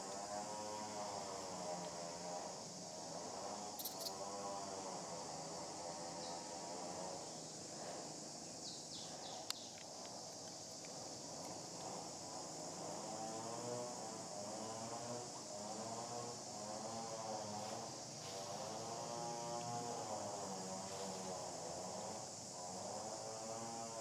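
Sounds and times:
high-pitched insect drone: 0.0 - 24.0.

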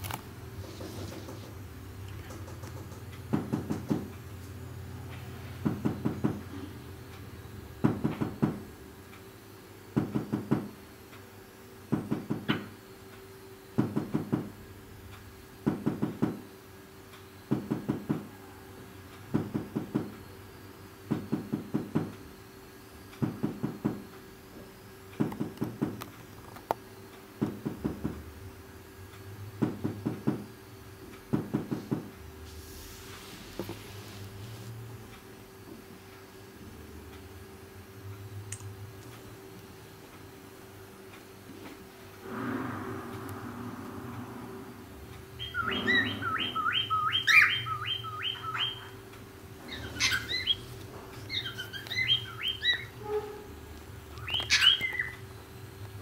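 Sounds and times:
low hum: 41.9 - 54.4.

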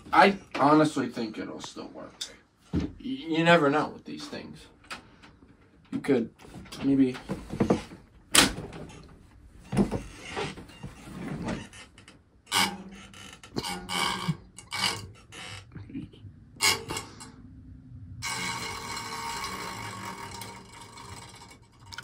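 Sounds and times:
rattling buzz of case fan: 11.5 - 22.0.

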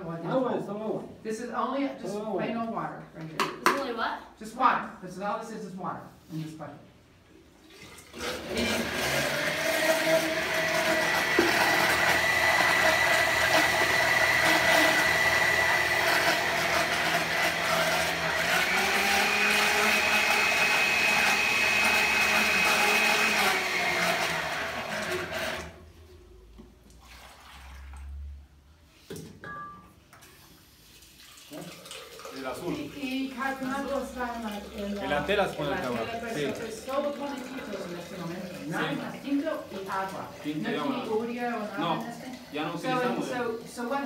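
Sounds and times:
electric mixer whirring in water: 8.0 - 25.8, 32.2 - 44.0.

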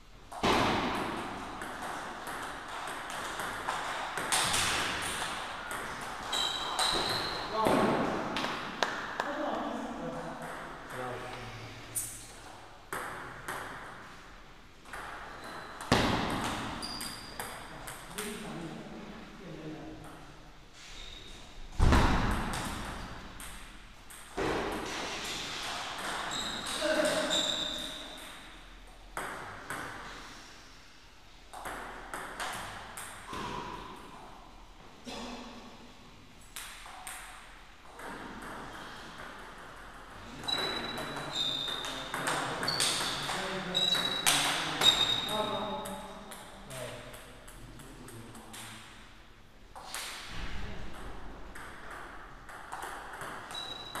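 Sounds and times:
table tennis ball hits: 0.3 - 9.3, 14.8 - 18.4, 21.8 - 25.1, 51.0 - 54.0.

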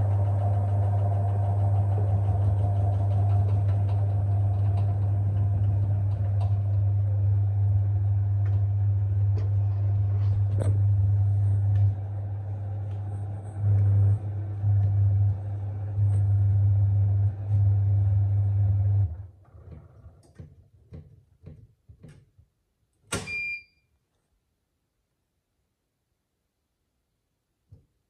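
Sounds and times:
washing machine spinning hum: 0.0 - 20.2
short high beep: 23.3 - 23.8.

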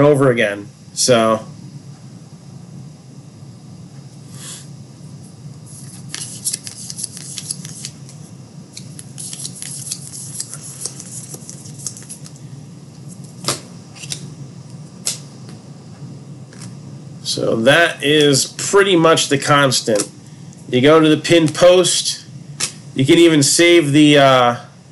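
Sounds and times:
steady low hum: 0.0 - 24.9
cards crinkling and clicking: 5.8 - 8.2, 8.8 - 12.4, 13.4 - 14.2.

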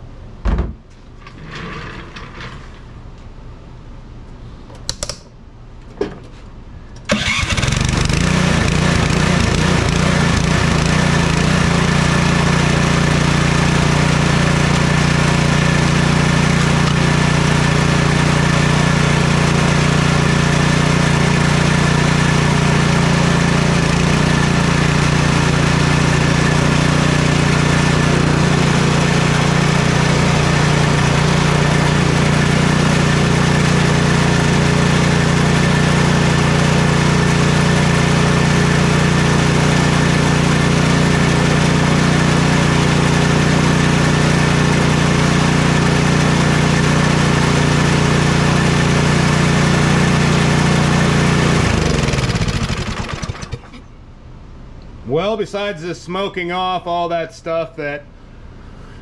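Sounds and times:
snowblower engine running steadily: 7.1 - 53.8.

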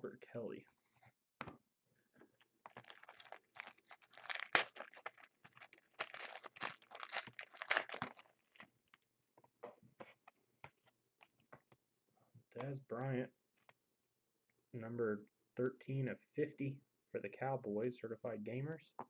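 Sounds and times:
wrapper tearing and crinkling: 2.7 - 8.7.

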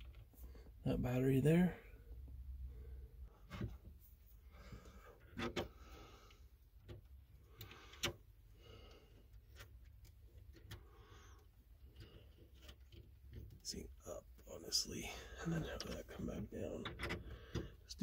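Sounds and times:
wire terminal clicks and knocks: 5.2 - 5.8, 6.8 - 8.3, 15.8 - 17.8.

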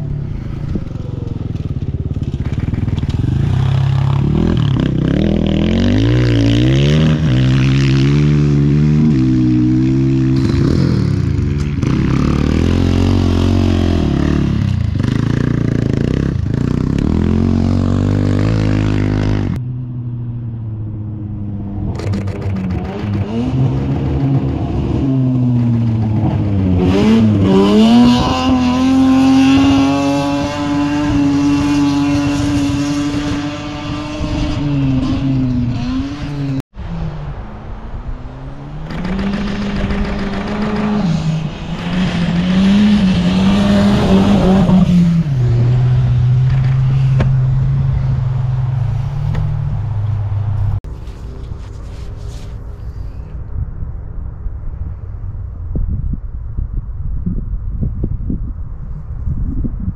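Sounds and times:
dirt bike engines revving: 0.0 - 19.6, 21.8 - 36.6, 38.6 - 51.4
engine at full throttle: 38.9 - 48.5.

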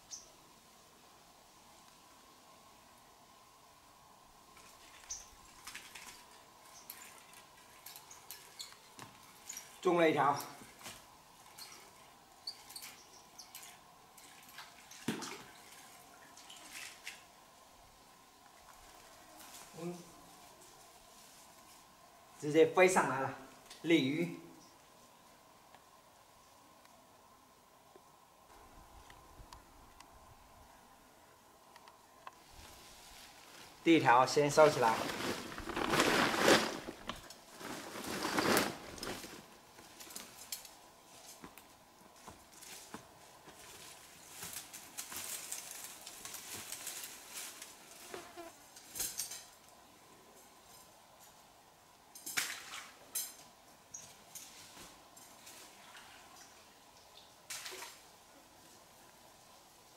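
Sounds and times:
mesh bag rustling and scraping: 34.4 - 40.5.

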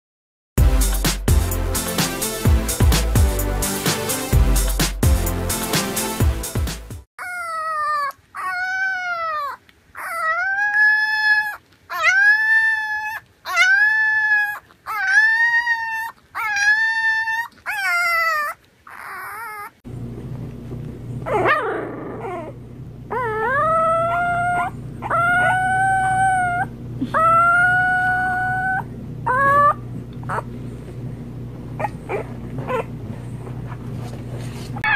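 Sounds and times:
puppies howling: 7.2 - 19.8, 21.3 - 30.5
steady low hum: 19.9 - 34.8.

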